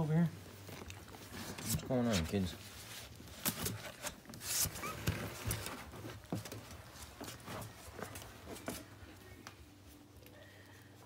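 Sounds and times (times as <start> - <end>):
dogs rustling on blankets: 0.4 - 10.3.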